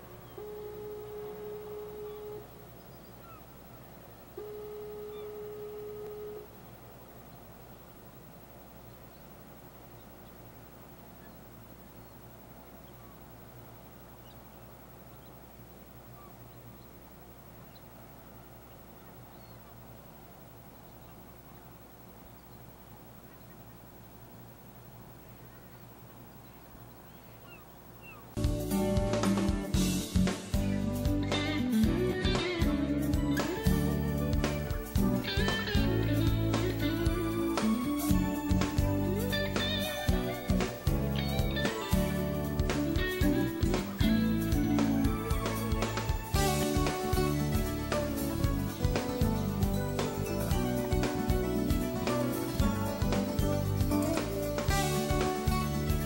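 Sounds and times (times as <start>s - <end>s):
steady horn blasts: 0.0s - 2.6s, 4.4s - 6.6s
faint bird chirps: 0.0s - 28.4s
low outdoor rumble: 0.0s - 56.0s
loud music with guitar and drums: 28.4s - 56.0s.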